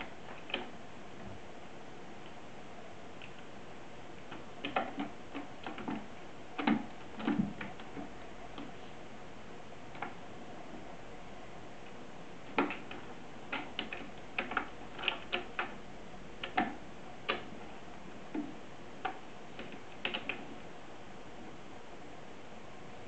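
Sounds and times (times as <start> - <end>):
cat clawing taps and clicks: 0.2 - 0.7, 4.3 - 8.8, 9.9 - 10.2, 12.5 - 15.8, 16.4 - 17.7, 18.3 - 20.5.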